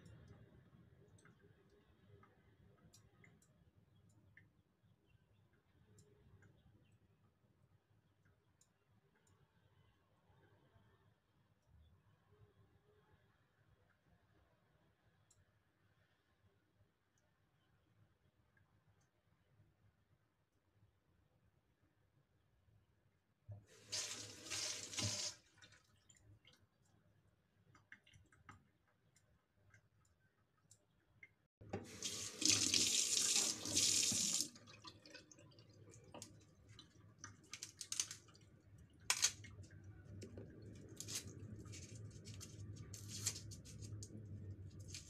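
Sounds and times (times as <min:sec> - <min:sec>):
kitchen tap running: 0:23.8 - 0:25.7, 0:31.7 - 0:36.4
garlic peeling clicks and scrapes: 0:37.4 - 0:38.4, 0:39.1 - 0:39.5.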